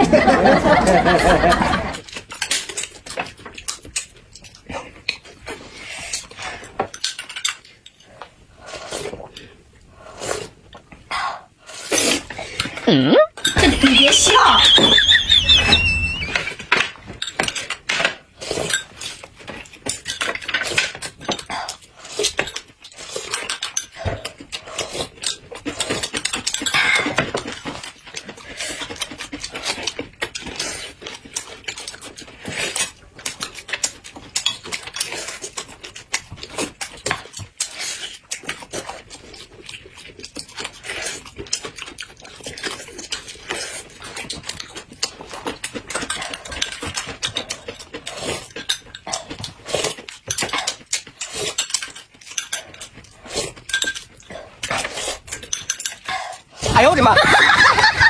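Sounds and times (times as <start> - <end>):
utensils clinking on glass and dishes: 16.0 - 38.6, 39.3 - 58.0
crisp biting and chewing: 17.5 - 56.8.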